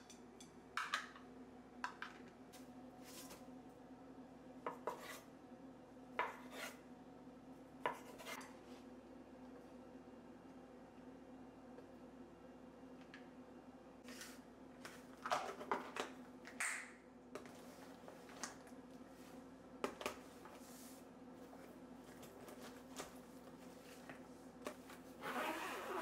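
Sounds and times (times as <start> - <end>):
faint steady hum: 0.0 - 26.0
zipper running: 25.2 - 26.0.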